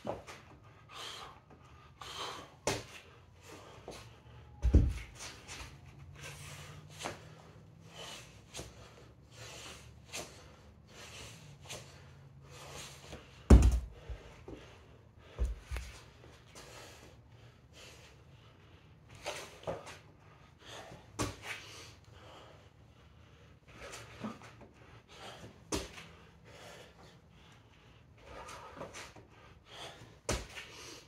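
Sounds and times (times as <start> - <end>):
man breathing hard: 0.0 - 31.0
kettlebell thud on rubber floor: 13.5 - 13.9.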